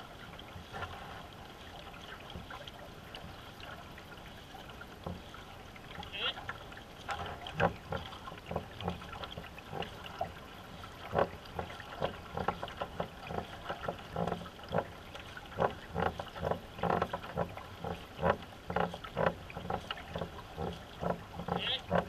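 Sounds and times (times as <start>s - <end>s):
paddle knocking against hull: 0.0s - 22.0s
paddle strokes splashing: 0.0s - 22.0s.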